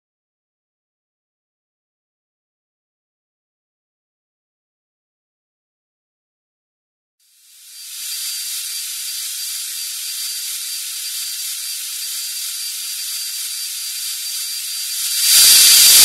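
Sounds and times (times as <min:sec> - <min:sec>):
bone drill whining: 0:08.0 - 0:16.0.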